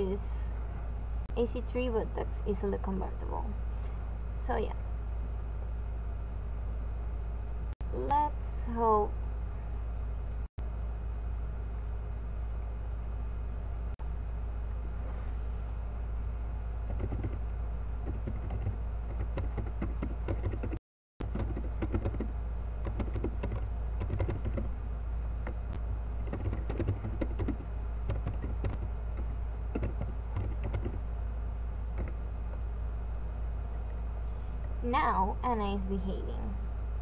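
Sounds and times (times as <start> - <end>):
low hum: 0.0 - 37.0
keyboard typing: 16.9 - 17.4, 18.0 - 24.7, 26.2 - 31.0, 31.9 - 32.2.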